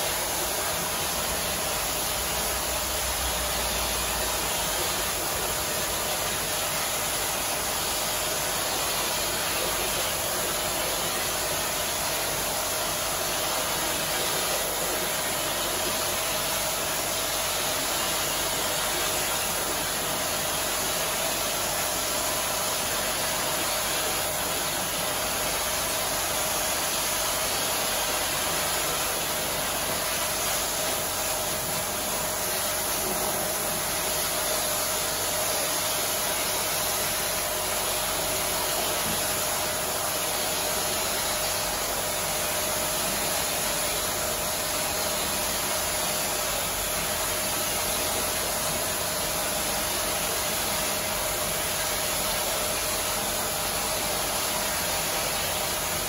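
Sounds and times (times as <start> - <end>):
pressure washer spraying water: 0.0 - 56.0.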